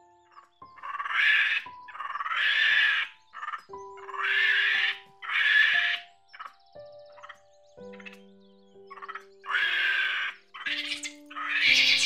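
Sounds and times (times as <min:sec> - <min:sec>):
soft background music: 0:00.0 - 0:12.0
harsh breathy monkey calls: 0:00.8 - 0:06.1, 0:08.9 - 0:12.0.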